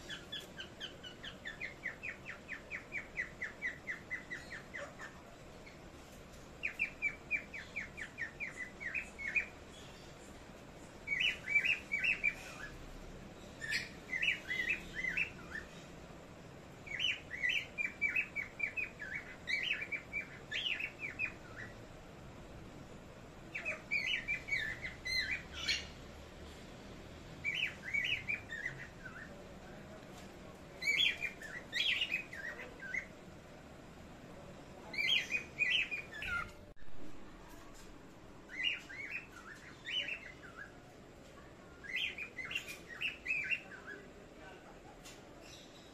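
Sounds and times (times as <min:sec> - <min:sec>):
parrots chirping: 0:00.0 - 0:26.3, 0:27.1 - 0:29.8, 0:30.8 - 0:33.6, 0:34.7 - 0:36.7, 0:38.4 - 0:41.0, 0:41.8 - 0:44.4.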